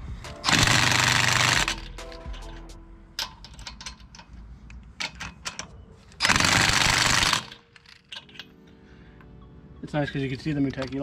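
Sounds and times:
tools clicking and knocking: 0:01.6 - 0:06.3, 0:07.4 - 0:08.6, 0:10.6 - 0:11.0.

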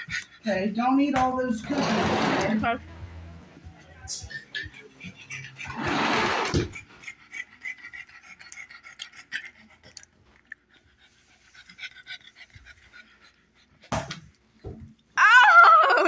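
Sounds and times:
dog panting: 0:00.0 - 0:01.0, 0:04.2 - 0:14.4.

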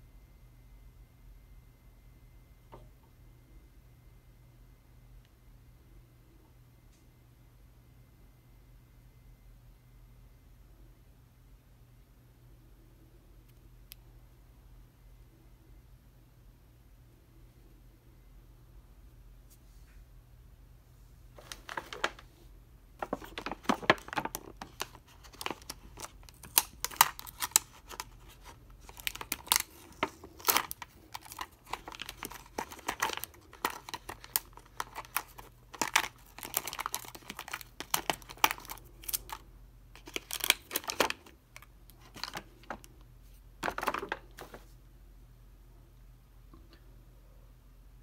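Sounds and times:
plastic bag crinkling: 0:21.4 - 0:22.2, 0:23.0 - 0:39.4, 0:40.0 - 0:42.9.

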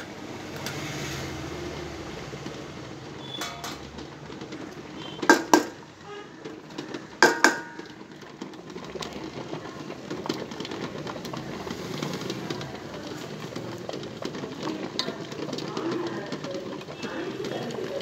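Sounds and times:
bowl ticking and scraping: 0:00.1 - 0:18.0
utensil clinking against steel bowl: 0:03.2 - 0:05.8, 0:06.4 - 0:08.2.

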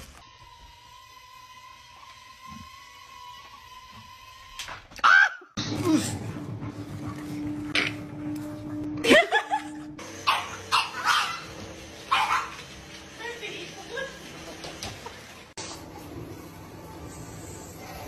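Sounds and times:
low hum: 0:05.6 - 0:10.2.

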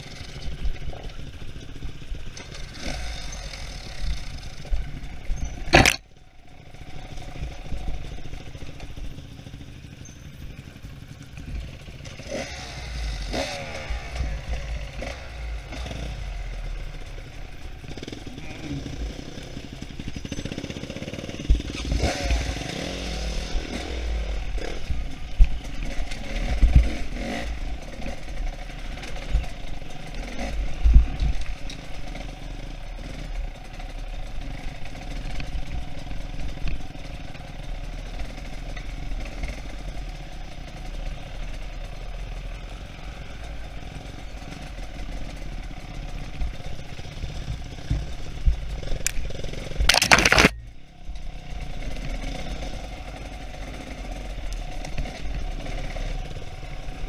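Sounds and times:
dirt bike engine revving: 0:00.0 - 0:50.7, 0:51.3 - 0:57.0
bike clattering over rocks: 0:05.7 - 0:06.0, 0:49.8 - 0:50.6.

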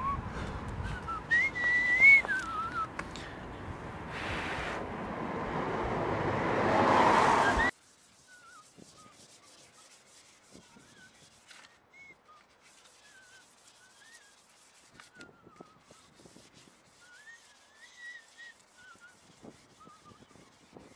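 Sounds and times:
person whistling a tune: 0:00.0 - 0:03.0
sanding on car body panel: 0:07.2 - 0:20.9.

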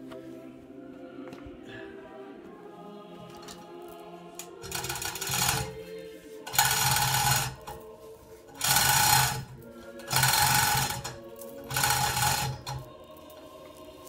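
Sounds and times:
electric hoist motor bursts: 0:06.5 - 0:07.8, 0:08.6 - 0:12.9.

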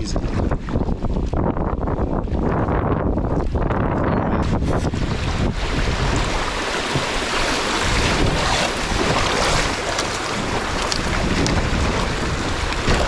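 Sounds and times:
wind buffeting microphone: 0:00.0 - 0:13.0
river water rushing over rapids: 0:04.9 - 0:13.0.

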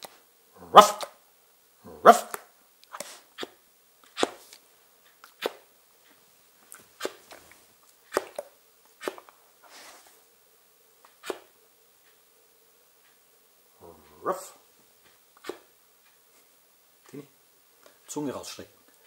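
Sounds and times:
dog barking and huffing: 0:00.6 - 0:01.2, 0:01.8 - 0:03.5, 0:13.8 - 0:14.6.

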